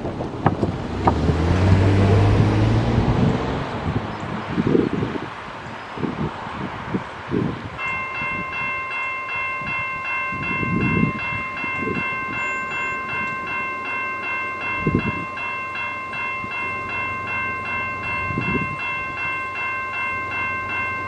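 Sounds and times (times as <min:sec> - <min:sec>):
wind buffeting microphone: 0:00.0 - 0:13.7, 0:14.5 - 0:20.6
railroad crossing bell clanging: 0:06.9 - 0:21.0.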